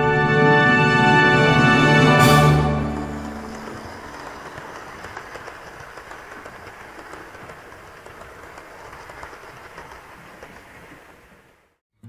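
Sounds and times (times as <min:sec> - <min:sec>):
model train wheels clicking: 0:02.5 - 0:11.8.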